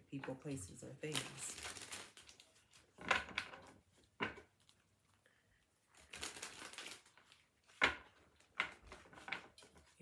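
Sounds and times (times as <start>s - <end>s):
cards rustling shuffling: 5.9s - 10.0s
cards slapping: 6.0s - 9.9s.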